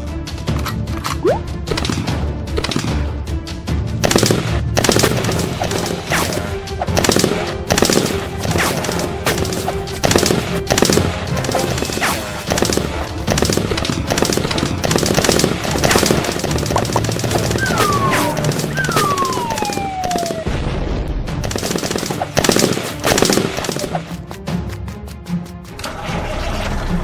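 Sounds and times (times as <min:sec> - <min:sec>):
background music: 0:00.0 - 0:27.0
automatic rifle gunfire: 0:04.0 - 0:06.2, 0:06.9 - 0:20.5, 0:21.4 - 0:24.1.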